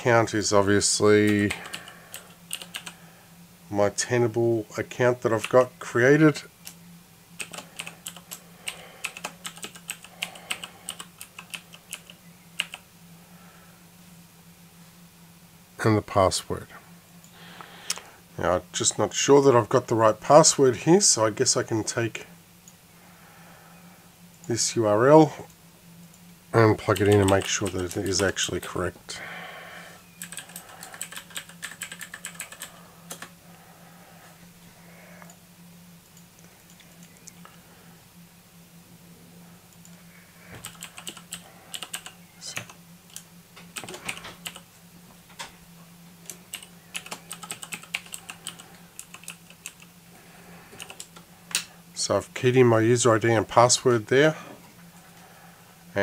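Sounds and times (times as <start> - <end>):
steady low hum: 0.0 - 56.0
computer keyboard typing: 1.1 - 3.0, 7.4 - 12.8, 26.8 - 28.4, 30.2 - 33.4, 40.6 - 44.7, 46.2 - 49.9, 50.7 - 51.2.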